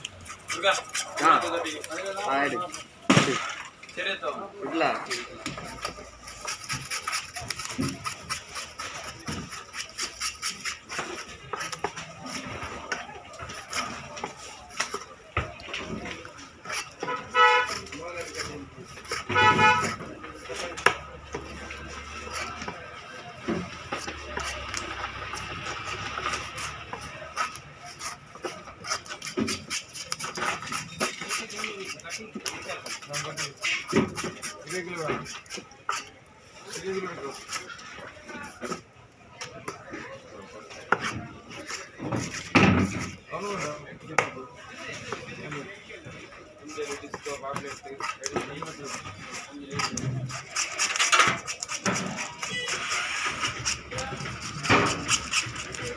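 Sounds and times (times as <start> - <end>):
knife chopping on wooden block: 23.4 - 36.1.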